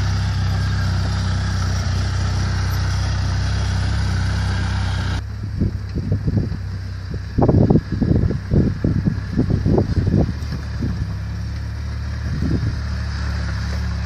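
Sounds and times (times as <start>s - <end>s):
vehicle engine running: 0.0s - 14.0s
wind buffeting microphone: 5.4s - 13.2s.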